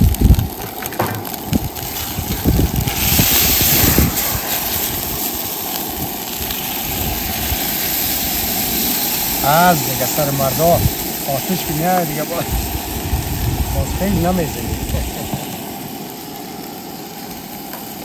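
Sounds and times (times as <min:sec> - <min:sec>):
burst of hissing flames: 0:00.0 - 0:18.0
garlic sizzling in pan: 0:00.0 - 0:18.0
gas burner roar: 0:00.0 - 0:18.0
utensil knocking on pan: 0:00.6 - 0:01.3.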